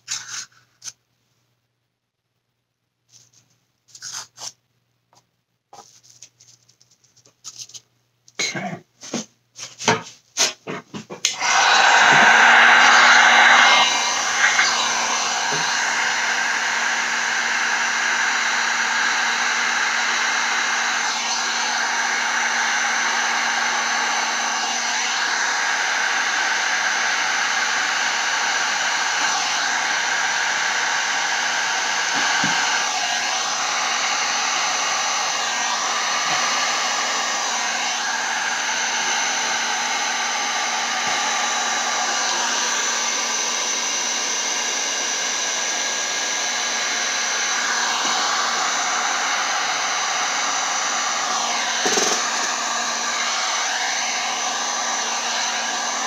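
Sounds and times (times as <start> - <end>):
heat gun blowing: 11.2 - 56.0.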